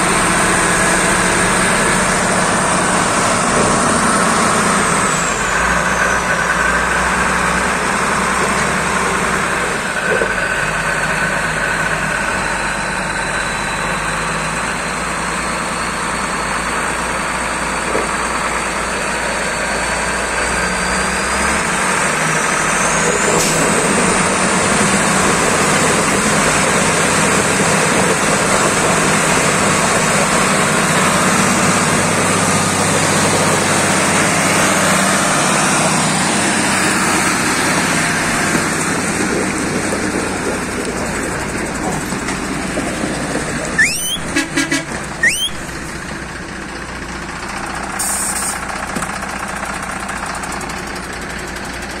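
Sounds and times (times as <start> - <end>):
tractor diesel engine running: 0.0 - 52.0
short rising chirps: 43.8 - 44.4, 45.2 - 46.0
brief hiss: 48.0 - 48.6.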